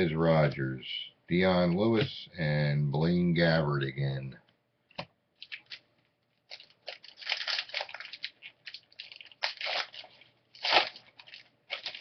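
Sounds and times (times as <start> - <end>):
foil wrapper tearing and crinkling: 5.4 - 5.8, 6.5 - 12.0.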